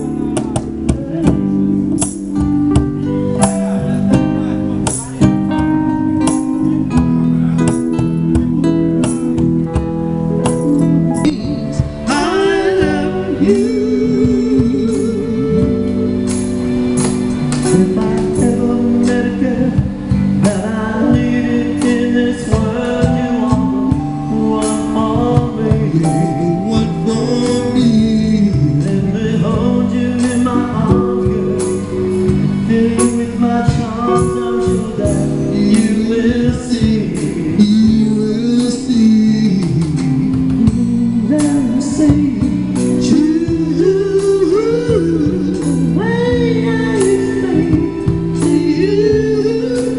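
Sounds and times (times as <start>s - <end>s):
electric keyboard: 0.0s - 49.9s
guitar: 0.0s - 49.9s
steady drum beat: 0.0s - 49.9s
person singing: 10.4s - 16.2s, 17.6s - 49.9s.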